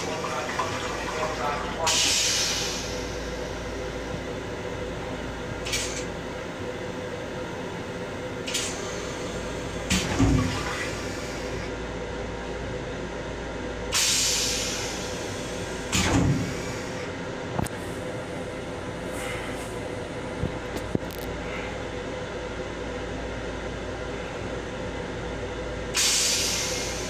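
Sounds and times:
toilet flushing hisses: 0.0 - 3.6, 8.5 - 11.7, 13.9 - 17.1, 26.0 - 27.0
railcar hum: 0.0 - 10.0, 10.7 - 27.0.

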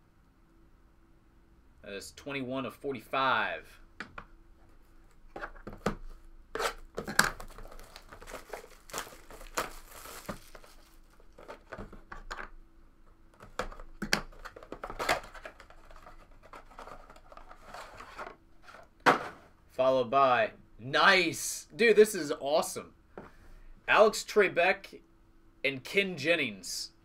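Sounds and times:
plastic wrap tearing and crinkling: 6.6 - 11.8.

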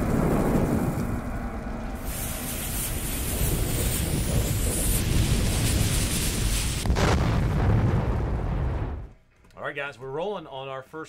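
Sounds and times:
burning fuse hissing: 2.0 - 7.1.

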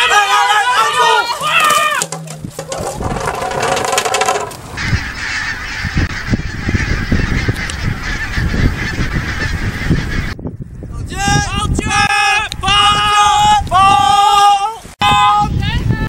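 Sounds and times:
geese honking: 0.0 - 10.4
low gusty rumble: 2.0 - 14.0.

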